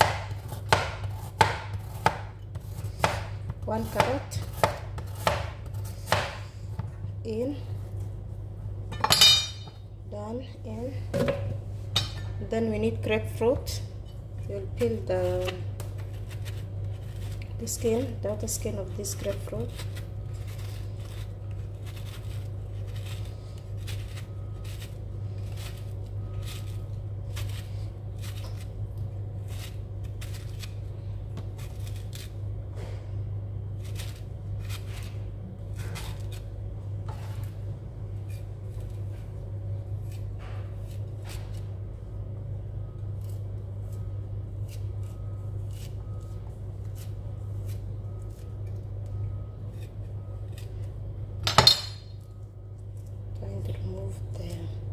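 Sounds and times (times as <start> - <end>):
steady low hum: 0.0 - 54.9
knife cutting grapefruit peel: 14.8 - 17.6, 19.2 - 33.0, 33.6 - 36.5, 40.0 - 41.7, 43.0 - 51.0.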